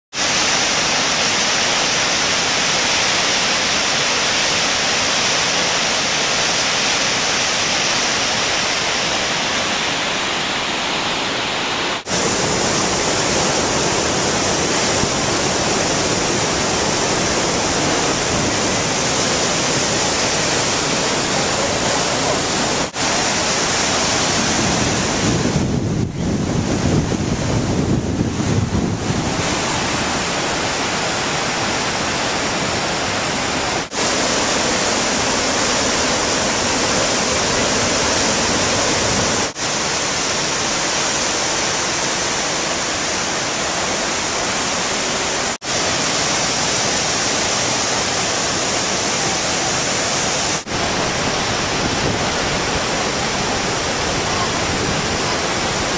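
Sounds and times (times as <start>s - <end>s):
waterfall rushing: 0.1s - 55.9s
wind rumble on microphone: 24.2s - 30.1s, 51.2s - 52.8s.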